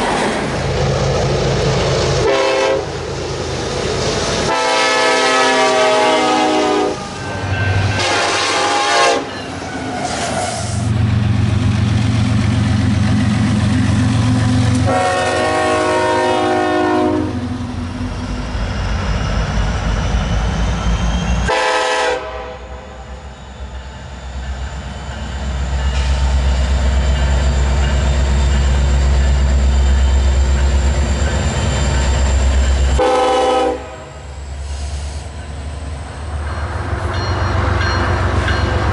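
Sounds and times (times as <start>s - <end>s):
freight train rumble: 0.0s - 38.9s
locomotive air horn blasts: 2.2s - 2.9s, 4.5s - 7.2s, 8.0s - 9.3s, 14.8s - 17.4s, 21.5s - 23.0s, 33.0s - 34.3s.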